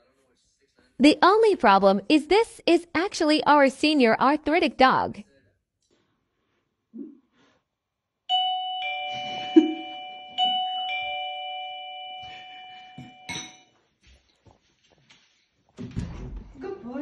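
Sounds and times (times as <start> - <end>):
doorbell ding-dong chime: 8.3 - 13.6.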